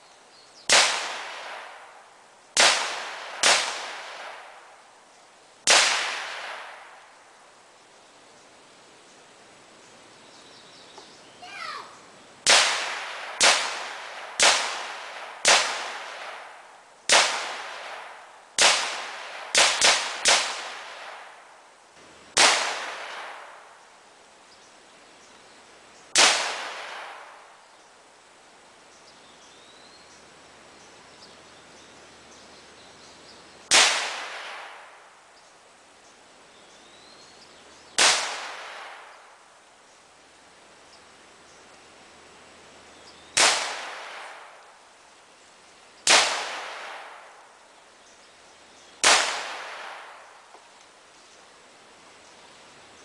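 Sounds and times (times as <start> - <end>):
echoing gunshots: 0.7 - 2.0, 2.6 - 4.7, 5.6 - 7.0, 12.4 - 21.4, 22.3 - 23.7, 26.1 - 27.5, 33.7 - 35.1, 38.0 - 39.3, 43.4 - 44.6, 46.0 - 47.4, 49.0 - 50.5.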